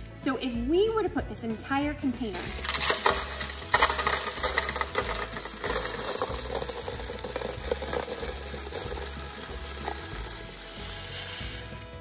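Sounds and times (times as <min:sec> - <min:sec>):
plastic beads pouring rattling: 0:02.2 - 0:12.0.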